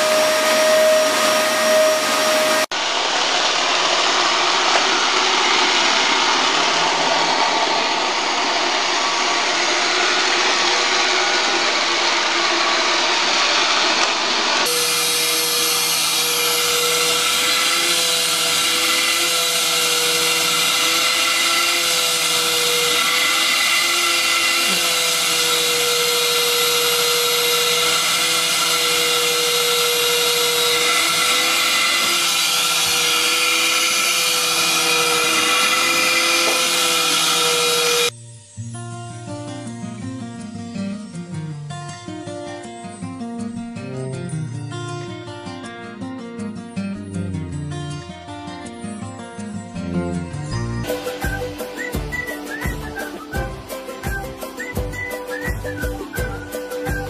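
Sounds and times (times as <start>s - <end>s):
vacuum cleaner motor whine: 0.0s - 38.5s, 50.9s - 57.0s.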